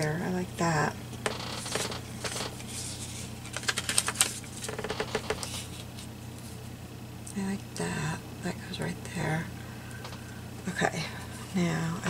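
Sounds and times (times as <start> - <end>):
paper rustling: 1.6 - 6.6.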